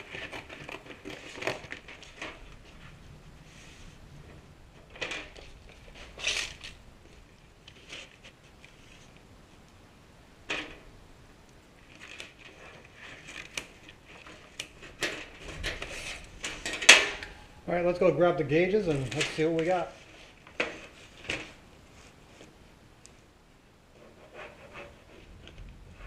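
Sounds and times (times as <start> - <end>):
cardboard and plastic handled: 0.0 - 2.9, 4.8 - 9.2, 11.8 - 17.2.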